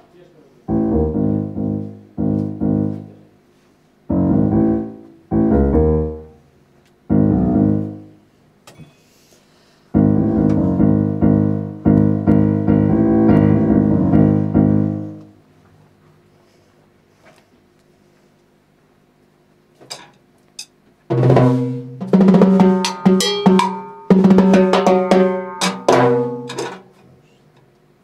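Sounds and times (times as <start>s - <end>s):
piano chords: 0.6s - 3.4s, 4.0s - 8.3s, 9.9s - 15.4s, 22.0s - 26.6s.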